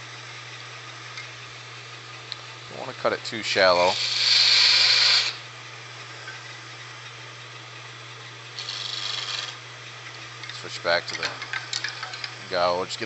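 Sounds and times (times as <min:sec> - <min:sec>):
wood lathe humming: 0:02.3 - 0:09.8
parting tool cutting wood: 0:03.7 - 0:05.4, 0:08.6 - 0:09.6.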